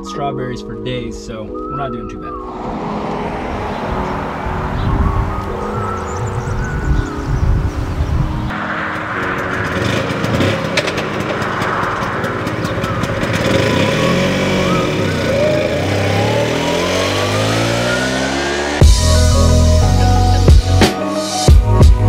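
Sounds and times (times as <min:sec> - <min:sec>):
small engine accelerating: 0:02.5 - 0:06.4, 0:09.5 - 0:18.8.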